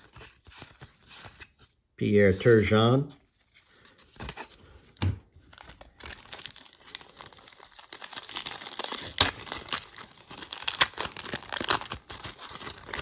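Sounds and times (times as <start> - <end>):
plastic wrapper crinkling and tearing: 5.3 - 13.0.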